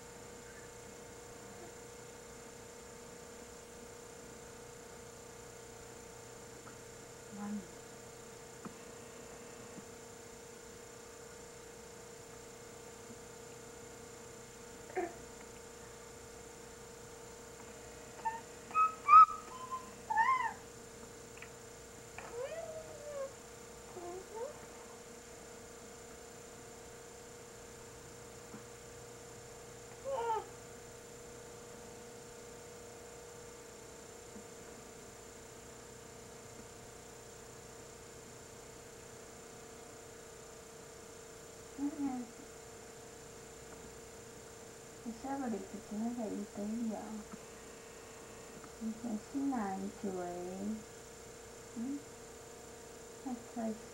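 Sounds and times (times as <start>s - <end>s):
constant hiss: 0.0s - 53.9s
electrical hum: 0.0s - 53.9s
baby squealing: 18.2s - 20.6s.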